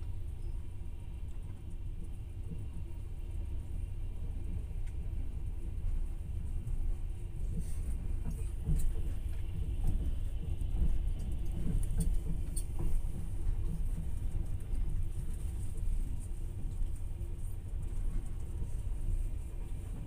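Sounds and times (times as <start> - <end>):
train carriage rumbling: 0.0 - 20.0.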